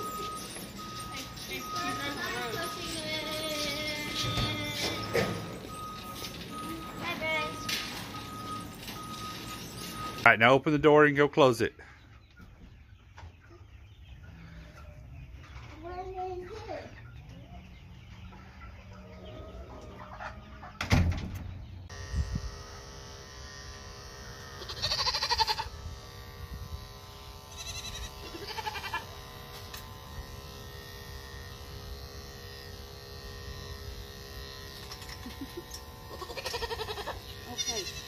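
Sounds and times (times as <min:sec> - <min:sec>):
electric clippers humming: 0:00.0 - 0:10.3, 0:21.9 - 0:38.0
goat bleating: 0:01.6 - 0:05.4, 0:24.6 - 0:25.7, 0:27.5 - 0:29.2, 0:36.1 - 0:38.0.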